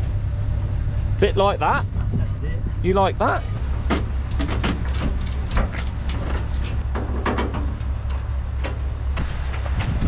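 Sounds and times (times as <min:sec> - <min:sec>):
diesel truck engine idling: 0:00.0 - 0:09.7
metallic clicks and knocks: 0:03.9 - 0:09.0.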